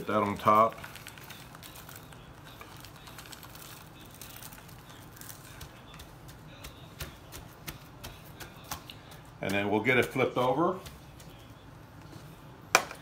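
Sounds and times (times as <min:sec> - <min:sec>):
gloved hand patting meat: 0:00.0 - 0:13.0.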